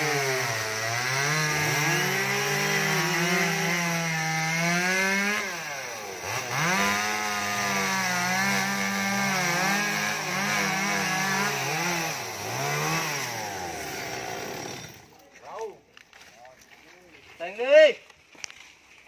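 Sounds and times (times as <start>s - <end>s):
chainsaw cutting wood: 0.0s - 15.2s.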